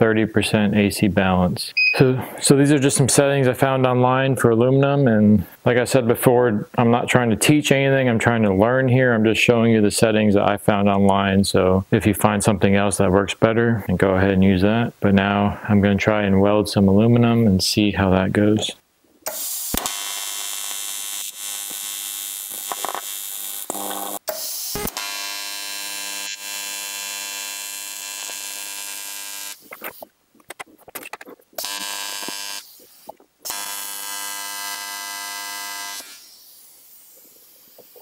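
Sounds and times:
welding arc buzzing: 19.2s - 30.1s, 31.6s - 38.0s.

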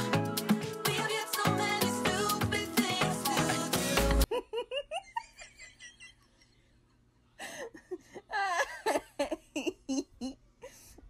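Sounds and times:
person giggling and laughing: 4.2s - 11.0s.

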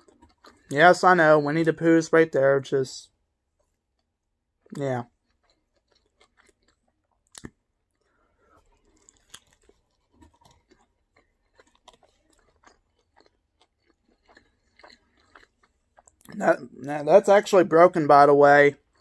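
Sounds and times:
person chewing: 0.0s - 0.9s, 3.6s - 16.8s, 18.7s - 19.0s.

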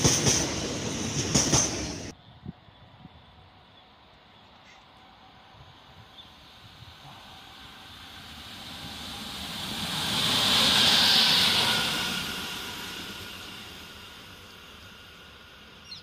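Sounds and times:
train wheels rushing on rails: 0.0s - 2.2s, 5.8s - 16.0s.

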